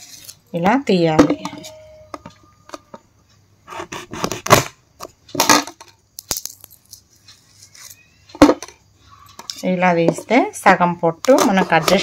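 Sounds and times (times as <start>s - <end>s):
knife scoring vegetables: 11.2s - 12.0s.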